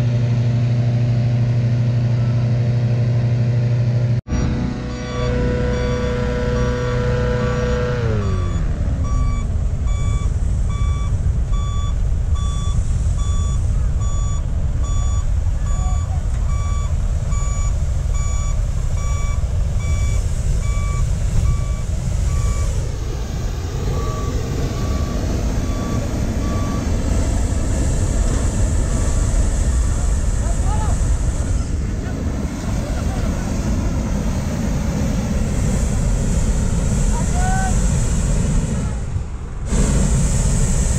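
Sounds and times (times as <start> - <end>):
low rumble: 4.2 - 40.9
reversing alarm beeping: 4.3 - 31.7
engine winding down: 4.3 - 40.9
hot air balloon burner roaring: 4.7 - 40.9.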